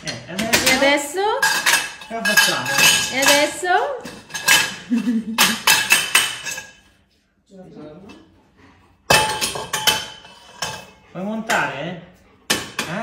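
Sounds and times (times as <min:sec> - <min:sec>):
metal tubes clanking on stone floor: 0:00.0 - 0:06.9, 0:09.1 - 0:11.8.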